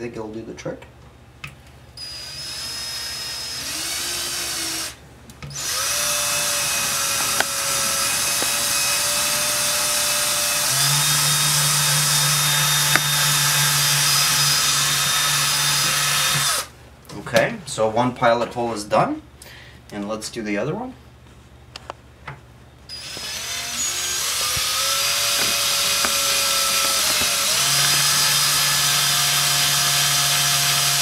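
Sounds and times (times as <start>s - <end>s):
cordless drill boring: 2.0s - 16.7s, 22.9s - 31.0s.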